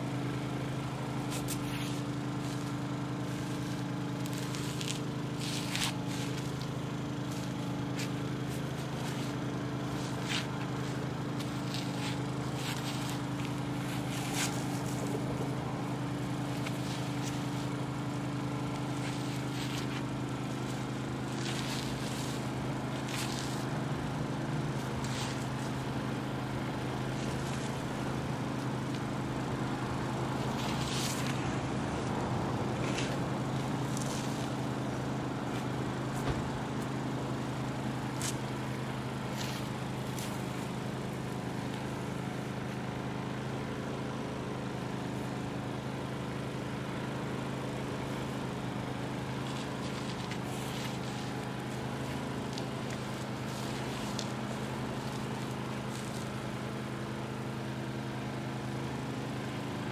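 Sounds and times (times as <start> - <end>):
low mechanical hum: 0.0 - 59.9
brief scuffing noises: 1.3 - 2.6.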